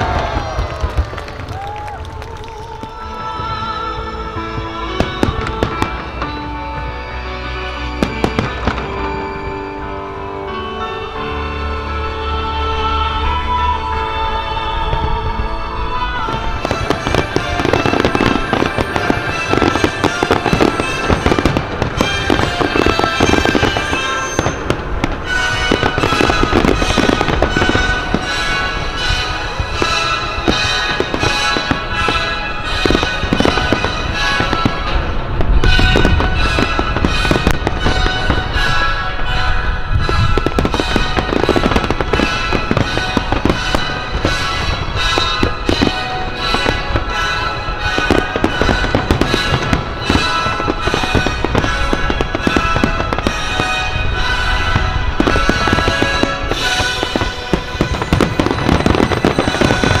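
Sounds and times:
fireworks bursting and crackling: 0.0s - 11.0s, 14.2s - 60.0s
music: 0.0s - 60.0s.

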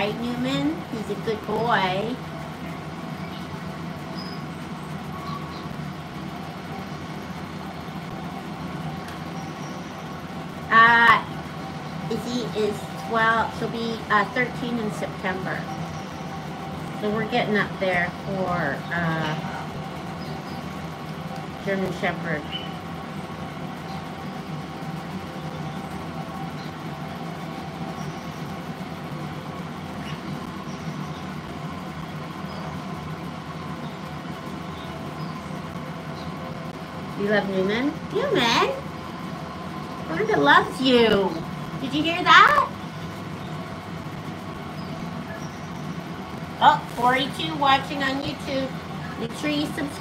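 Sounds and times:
room machinery hum: 0.0s - 50.0s
parrots chirping: 44.7s - 46.1s.

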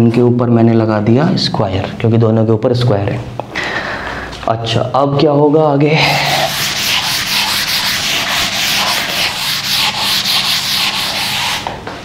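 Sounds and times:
duster rubbing chalkboard: 6.0s - 11.8s.

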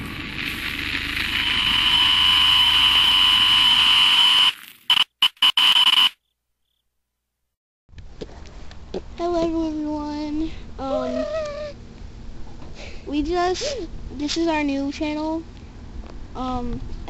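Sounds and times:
high-pitched whine: 0.0s - 6.1s
loud static noise: 0.0s - 6.2s.

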